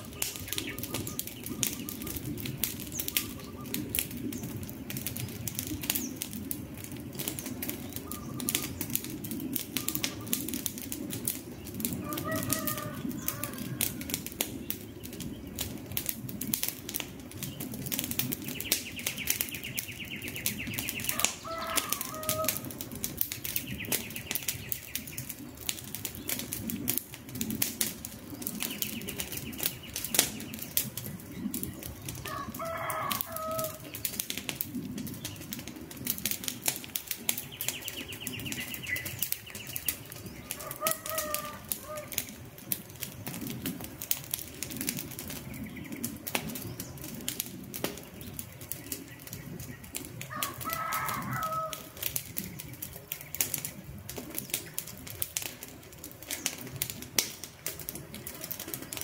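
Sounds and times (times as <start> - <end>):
bird calling: 0.0 - 4.2, 7.4 - 10.5, 12.0 - 14.2, 18.4 - 22.7, 37.2 - 42.4
campfire crackling and popping: 0.0 - 59.0.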